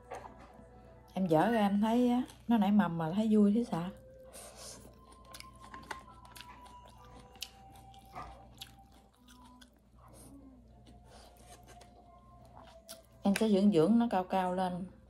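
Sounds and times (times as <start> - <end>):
person chewing crunchy food: 4.3 - 13.2.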